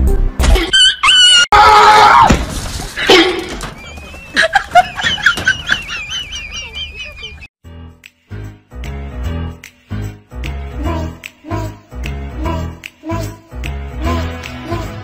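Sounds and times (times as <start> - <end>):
loud scream: 0.7 - 2.4.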